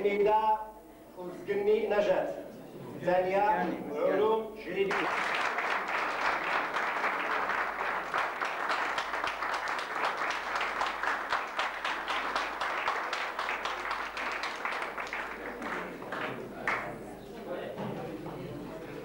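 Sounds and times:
audience applauding: 4.9 - 17.0.

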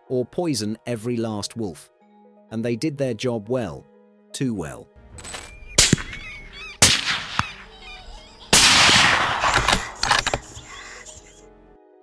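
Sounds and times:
birds calling: 5.2 - 11.5
rifle shots: 5.8 - 7.7, 8.5 - 10.5.

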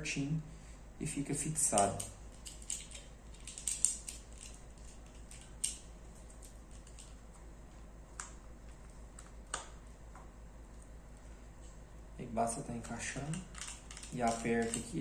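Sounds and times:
faint low hum: 0.0 - 15.0
metal and plastic clicks: 13.2 - 15.0.

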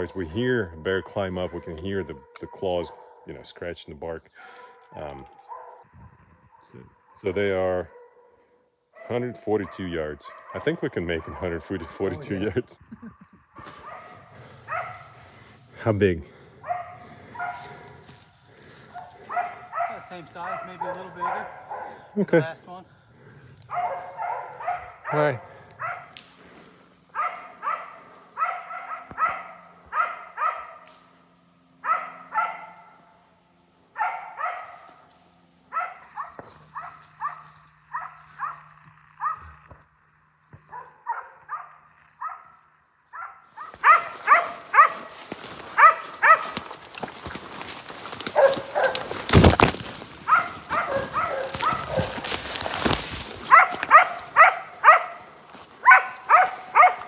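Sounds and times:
dogs barking: 0.0 - 12.8, 13.4 - 39.8, 40.5 - 57.0
rustling of brush and leaves: 17.2 - 21.9, 34.3 - 40.3, 43.5 - 57.0.

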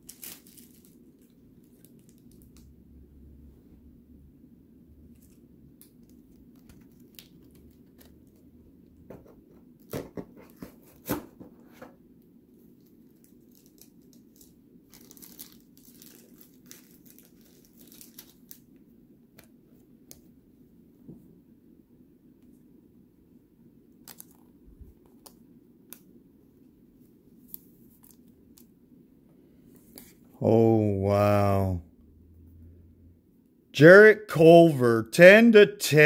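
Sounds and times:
foil wrapper tearing and crinkling: 0.0 - 2.7, 13.0 - 18.7.

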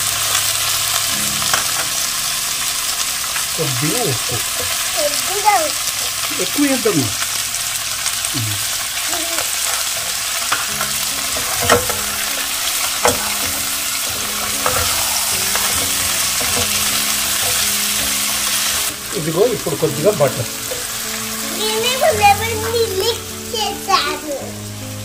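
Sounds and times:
vegetables sizzling in oil: 0.0 - 25.0
spatula stirring: 9.3 - 21.5
spatula knocking against pan: 9.7 - 18.9.

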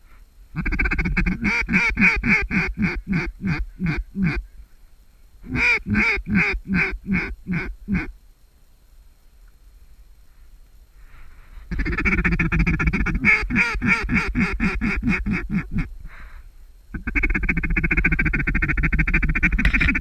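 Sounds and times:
duck call quacks: 0.5 - 4.5, 5.4 - 8.1, 11.7 - 16.3, 16.9 - 20.0.

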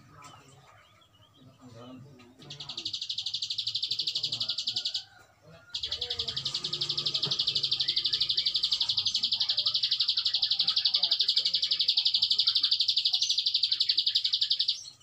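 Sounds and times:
songbird high trill: 5.8 - 14.9.

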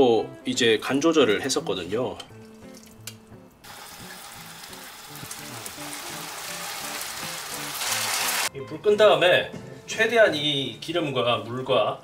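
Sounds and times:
oil sizzling in a frying pan: 3.6 - 8.5.

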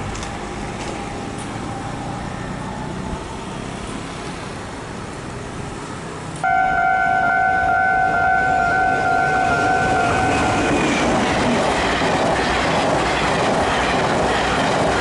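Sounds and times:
road traffic rumble: 0.0 - 15.0
two-pitched warning tone: 6.4 - 10.6.

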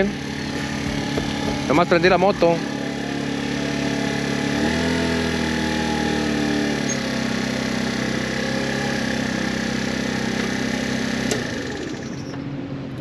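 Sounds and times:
small scooter engine idling: 0.0 - 13.0.

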